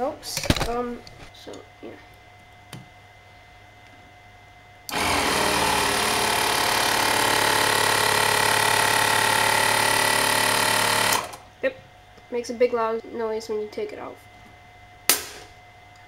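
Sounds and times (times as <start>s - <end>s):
muffled air pump running: 4.9s - 11.7s.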